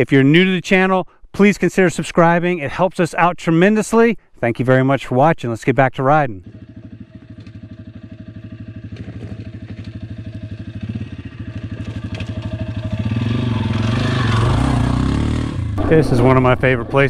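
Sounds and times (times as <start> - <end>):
dirt bike engine at low revs: 6.4 - 16.9.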